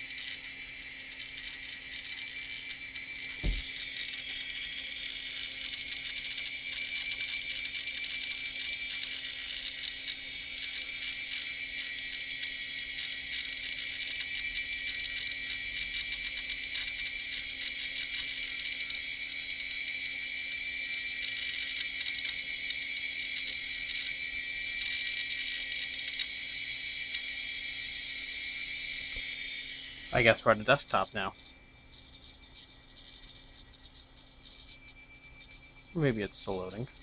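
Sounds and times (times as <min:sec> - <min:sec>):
high whine: 0:00.0 - 0:37.0
hard drive seeking clatter: 0:01.0 - 0:19.0.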